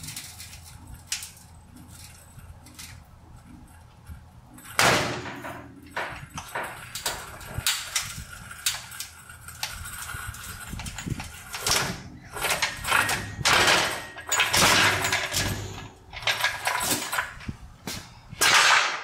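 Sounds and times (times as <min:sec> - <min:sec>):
metal clanks: 0:11.0 - 0:17.5, 0:18.4 - 0:19.0.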